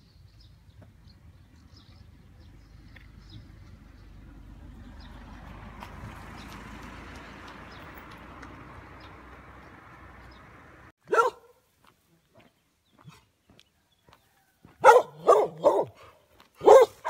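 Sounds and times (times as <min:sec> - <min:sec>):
dog barking: 0:11.0 - 0:11.6, 0:14.8 - 0:17.0.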